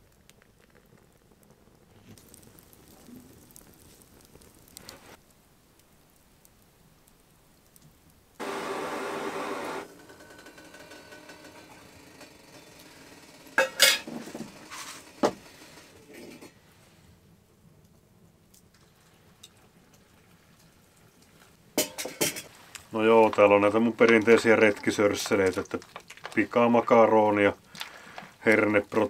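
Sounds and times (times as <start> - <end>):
gas stove hiss: 1.7 - 17.5, 18.4 - 25.4
plastic bag rustling: 22.4 - 29.0.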